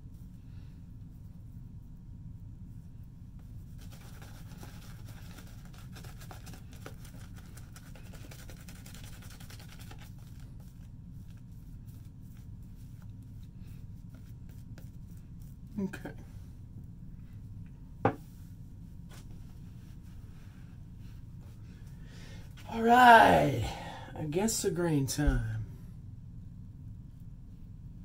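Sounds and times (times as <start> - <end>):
shaving brush scratching lather: 3.7 - 13.1.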